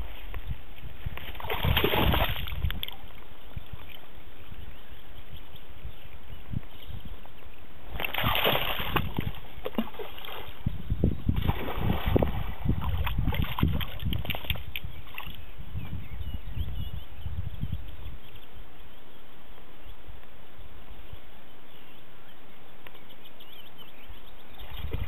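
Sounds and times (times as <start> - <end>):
wind rumble on microphone: 0.0 - 19.0, 23.4 - 25.0
dog splashing in water: 8.0 - 10.6.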